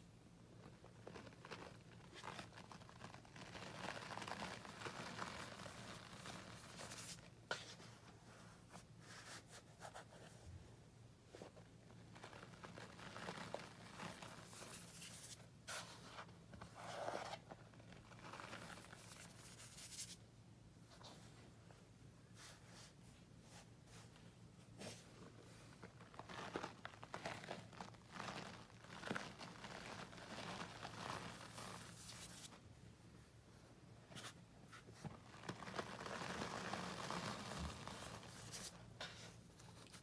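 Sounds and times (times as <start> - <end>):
powder crunching and rustling: 0.5 - 7.3, 11.8 - 16.3, 17.0 - 20.2, 25.5 - 32.6, 34.7 - 40.0.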